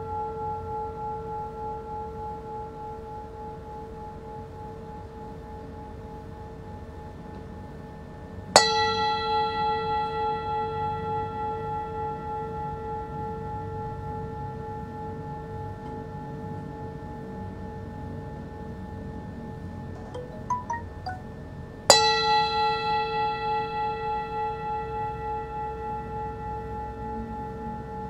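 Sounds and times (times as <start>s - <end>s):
singing bowl ringing: 20.0s - 24.8s.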